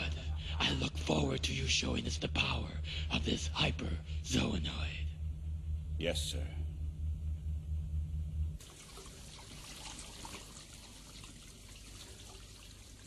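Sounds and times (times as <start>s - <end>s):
low pulsing hum: 0.0s - 11.0s
water trickling from tap: 8.6s - 13.0s.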